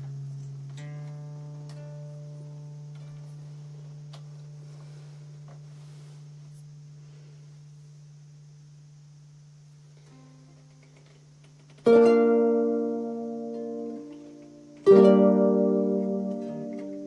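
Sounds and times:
plucked harp notes: 11.8s - 17.0s.

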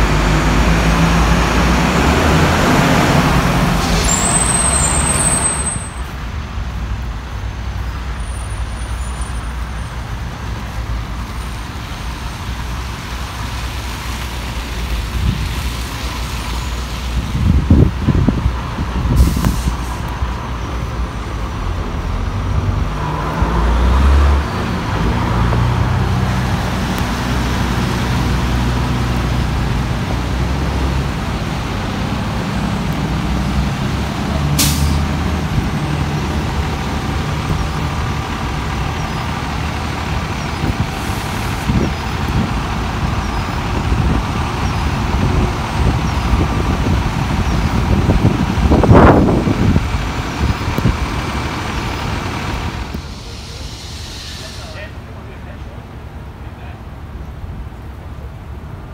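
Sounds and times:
diesel engine rumbling: 0.0s - 58.9s
air brakes hissing: 3.7s - 6.0s, 19.1s - 20.1s, 34.5s - 35.2s, 53.0s - 55.1s.

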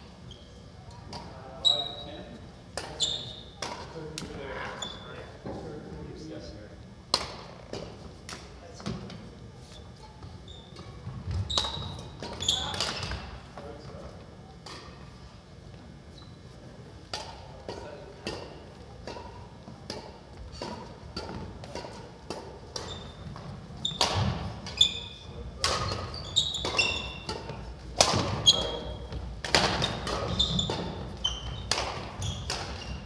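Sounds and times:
sneakers squeaking on wooden floor: 1.5s - 3.6s, 4.6s - 5.4s, 9.7s - 13.4s, 22.7s - 33.0s
racket striking shuttlecock: 7.1s - 8.4s, 23.9s - 24.8s, 25.6s - 33.0s.

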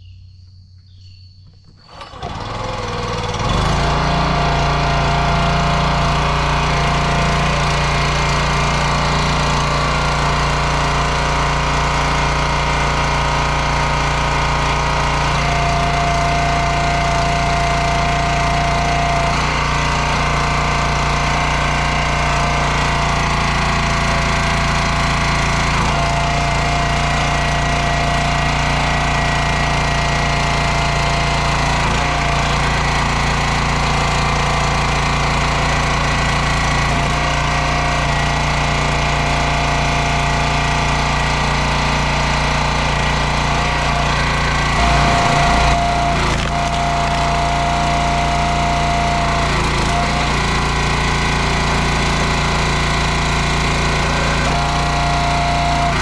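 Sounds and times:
small gas engine running: 1.6s - 56.0s.

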